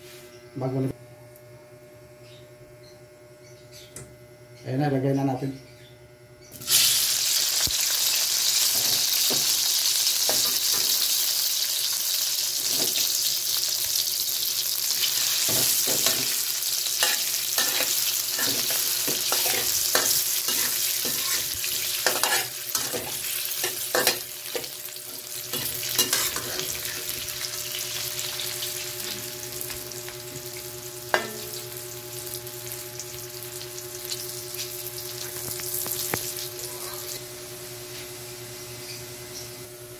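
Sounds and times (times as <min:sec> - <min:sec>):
food sizzling in a hot wok: 0:06.6 - 0:39.4
metal spatula scraping a wok: 0:17.0 - 0:24.2, 0:25.6 - 0:27.1.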